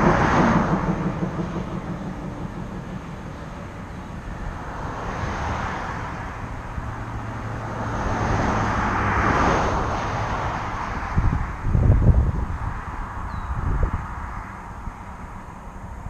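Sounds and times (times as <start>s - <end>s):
car driving past: 0.0s - 11.7s.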